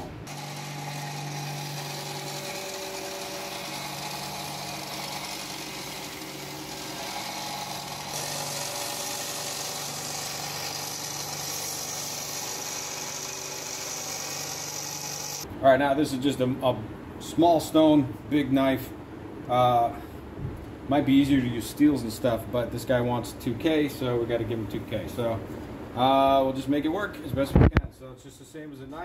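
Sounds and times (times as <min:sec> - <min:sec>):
belt sander grinding steel blade: 0:00.0 - 0:15.4
motor hum: 0:00.0 - 0:15.4.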